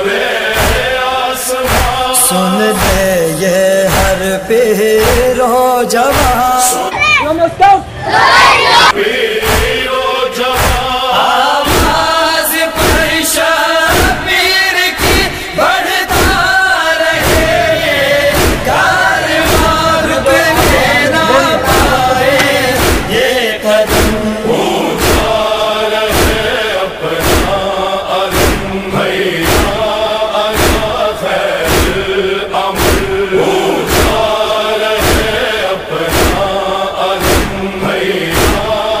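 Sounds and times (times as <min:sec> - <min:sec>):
men chanting in unison: 0:00.0 - 0:06.9, 0:08.0 - 0:39.0
thumping beat: 0:00.6 - 0:01.0, 0:01.6 - 0:05.5, 0:06.1 - 0:06.6, 0:09.4 - 0:09.8, 0:10.6 - 0:11.0, 0:11.7 - 0:12.0, 0:13.9 - 0:14.3, 0:15.0 - 0:15.4, 0:16.0 - 0:25.5, 0:26.1 - 0:26.5, 0:27.2 - 0:27.7, 0:28.3 - 0:30.0, 0:30.6 - 0:31.0, 0:31.7 - 0:34.4, 0:35.0 - 0:35.4, 0:36.1 - 0:36.6, 0:37.2 - 0:38.8.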